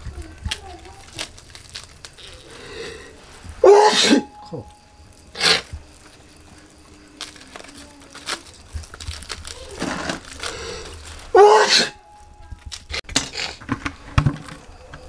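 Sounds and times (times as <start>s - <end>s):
man sneezing: 3.6s - 4.3s, 11.4s - 12.0s.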